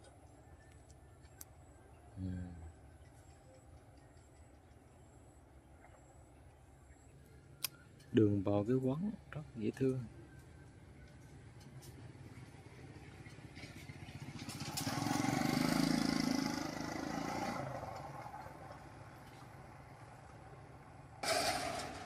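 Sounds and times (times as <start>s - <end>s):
motorbike engine passing by: 12.0s - 22.0s.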